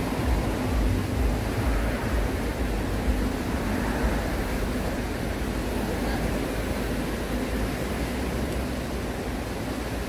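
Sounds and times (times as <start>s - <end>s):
low rumble: 0.0s - 7.7s
small waves breaking on sand: 0.0s - 10.0s.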